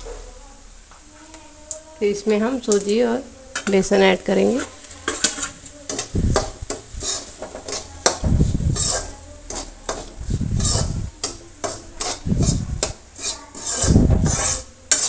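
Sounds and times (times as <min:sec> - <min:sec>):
metal spatula scraping pan: 0:03.5 - 0:15.0.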